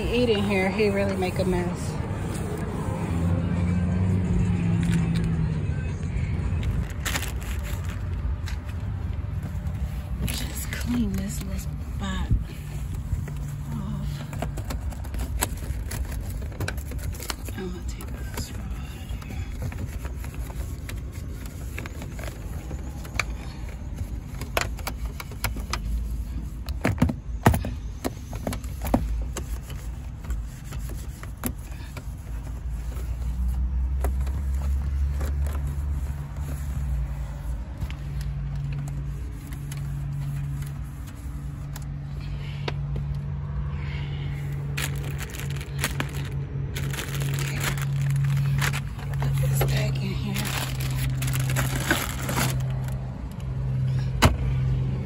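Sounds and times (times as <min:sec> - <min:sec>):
low droning hum: 0:29.6 - 0:54.5.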